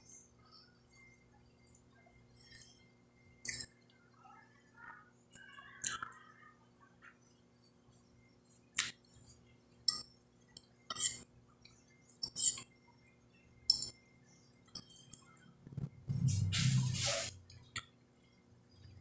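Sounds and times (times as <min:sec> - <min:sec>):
fork scraping glass plate: 0:10.9 - 0:11.2, 0:12.2 - 0:12.7
low hum: 0:15.5 - 0:17.6.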